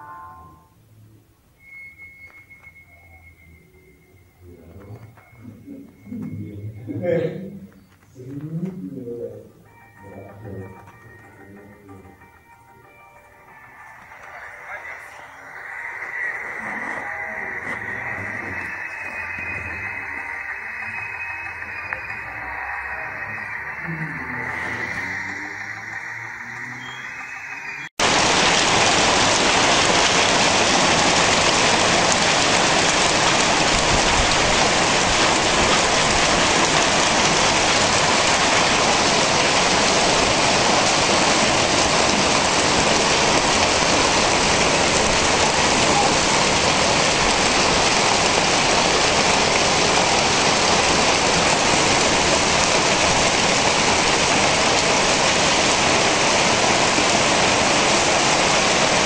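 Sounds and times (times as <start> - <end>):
heavy rain on roof tiles: 13.1 - 26.2, 26.8 - 59.0.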